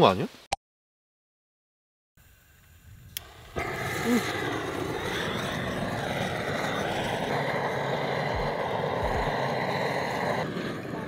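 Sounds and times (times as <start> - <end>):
gas torch hissing: 2.2 - 11.0.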